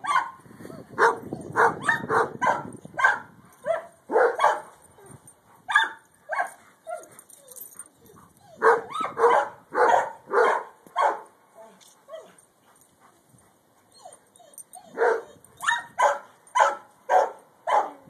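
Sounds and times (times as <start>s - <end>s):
dog barking: 0.0s - 0.4s, 1.0s - 4.7s, 5.7s - 7.0s, 8.6s - 11.2s, 14.9s - 18.0s.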